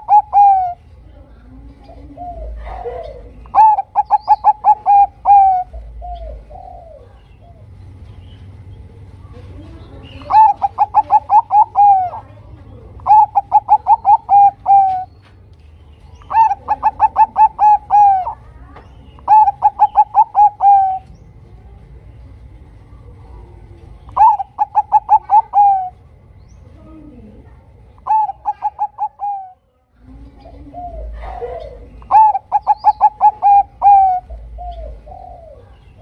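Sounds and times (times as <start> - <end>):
dove cooing rapidly: 0.0 - 0.9, 1.7 - 7.8, 10.0 - 15.2, 16.2 - 18.5, 19.1 - 21.2, 23.4 - 26.0, 28.0 - 29.6, 30.2 - 36.0
soft low dove coos: 1.6 - 7.8, 10.2 - 15.1, 16.3 - 18.4, 23.0 - 26.0, 26.8 - 36.0.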